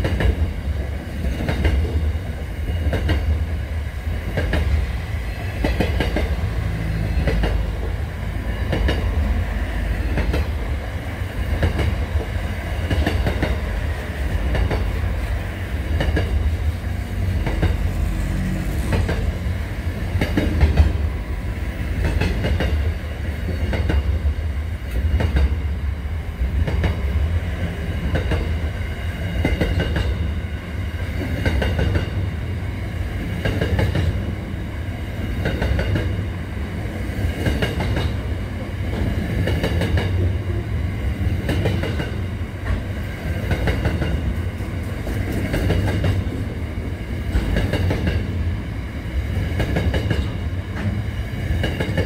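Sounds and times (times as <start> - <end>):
freight train rumbling past: 0.0 - 52.0
high ringing of wheels on rail: 0.0 - 52.0
wheels clacking over rail joints: 7.2 - 8.0, 41.3 - 46.6.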